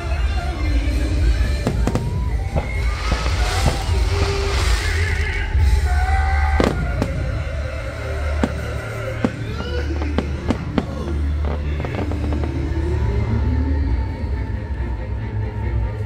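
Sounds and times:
fireworks crackling hiss: 0:00.8 - 0:12.8
fireworks bangs: 0:00.9 - 0:12.8.

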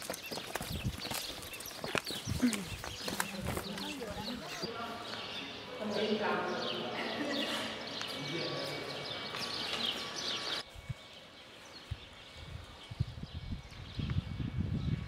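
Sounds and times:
birds chirping: 0:00.0 - 0:14.4.

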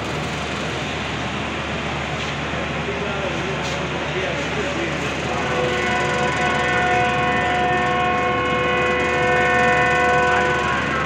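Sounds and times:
train horn blast: 0:05.2 - 0:11.0.

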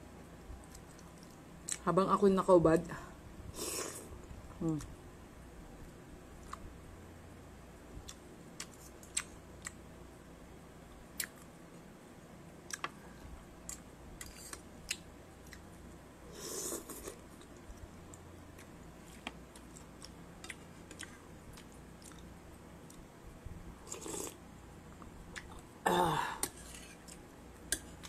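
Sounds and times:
chewing: 0:16.5 - 0:23.0.

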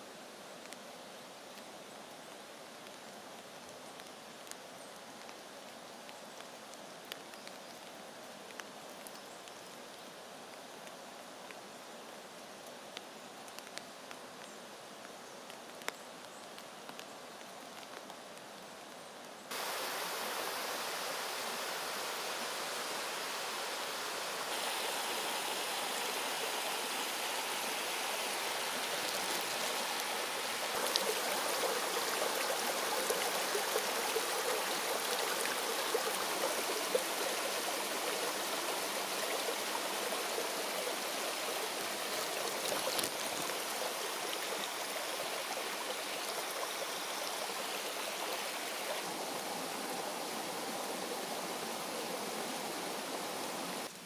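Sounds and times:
stream rushing over rocks: 0:19.5 - 0:54.0.

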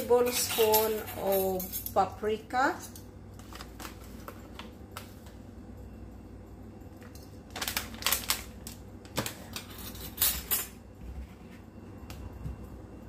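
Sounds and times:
plastic packet crinkling: 0:07.5 - 0:09.4.

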